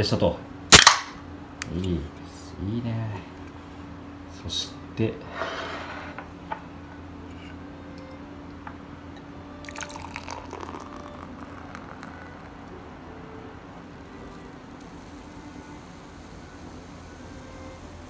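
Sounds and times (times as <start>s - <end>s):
beer pouring into a glass: 9.5s - 18.0s.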